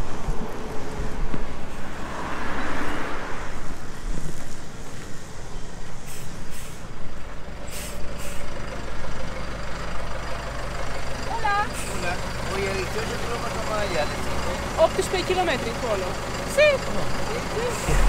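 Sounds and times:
vehicle engine running: 8.8s - 18.0s.

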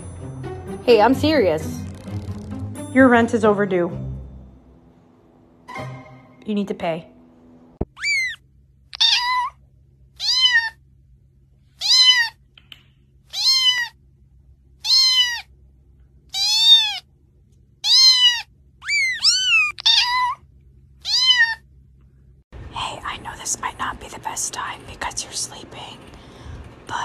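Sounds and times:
recorded cat meows: 7.8s - 9.6s, 10.2s - 10.8s, 11.8s - 12.4s, 13.3s - 14.0s, 14.8s - 15.5s, 16.3s - 17.0s, 17.8s - 20.4s, 21.0s - 21.6s.

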